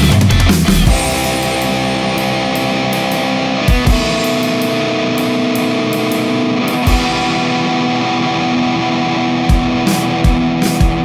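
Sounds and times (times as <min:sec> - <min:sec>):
guitar chords: 0:00.0 - 0:11.0
low drum hits: 0:00.9 - 0:07.4.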